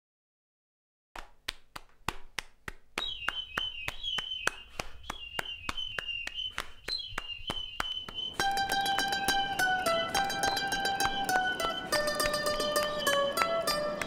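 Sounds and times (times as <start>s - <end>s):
thin high wavering tone: 8.3s - 14.0s.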